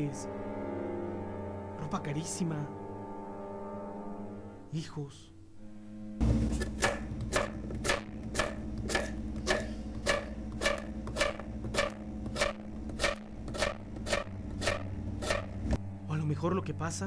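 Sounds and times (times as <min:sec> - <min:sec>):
low steady hum: 0:00.0 - 0:17.0
knife chopping on cutting board: 0:06.5 - 0:15.5.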